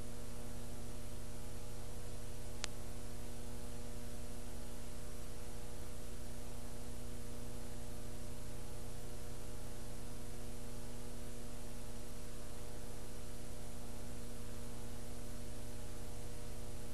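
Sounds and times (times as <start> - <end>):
electrical mains hum: 0.0 - 16.9.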